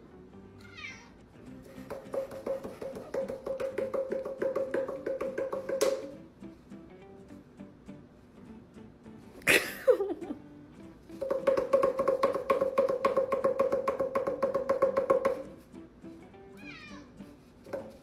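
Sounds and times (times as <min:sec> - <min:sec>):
background music: 0:00.0 - 0:18.0
cat yowling: 0:00.6 - 0:01.2, 0:16.6 - 0:17.2.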